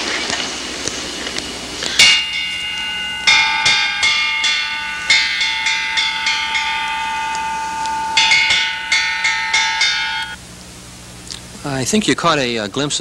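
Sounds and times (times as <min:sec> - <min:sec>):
metal alarm gong clanging: 0:01.9 - 0:10.4.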